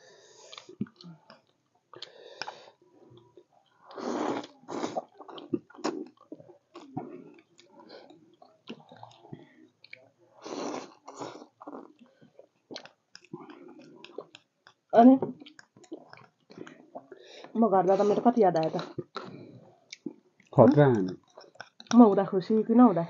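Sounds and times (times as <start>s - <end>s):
people chewing: 0.0s - 23.0s
slurping: 3.8s - 14.4s.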